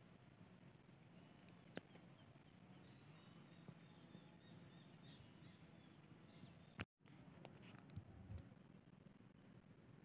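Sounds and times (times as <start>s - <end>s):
distant birds chirping: 0.0s - 6.9s.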